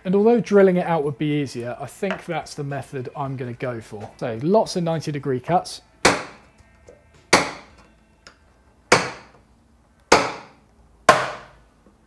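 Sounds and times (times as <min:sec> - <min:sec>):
mallet striking chisel: 0:06.0 - 0:06.4, 0:07.3 - 0:07.8, 0:08.9 - 0:09.4, 0:10.1 - 0:11.6.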